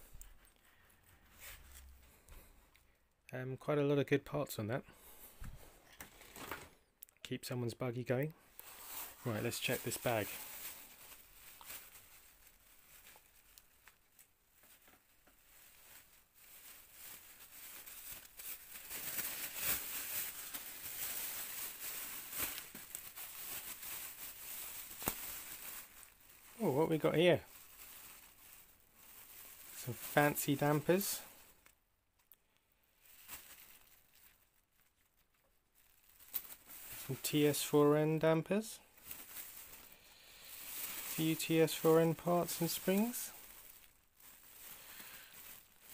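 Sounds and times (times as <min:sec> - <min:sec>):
faint clicks and rustles: 0:08.5 - 0:26.6, 0:31.4 - 0:37.2.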